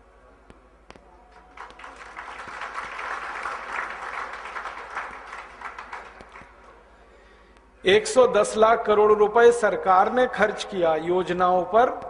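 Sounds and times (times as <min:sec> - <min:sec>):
audience applauding: 0:01.3 - 0:06.7.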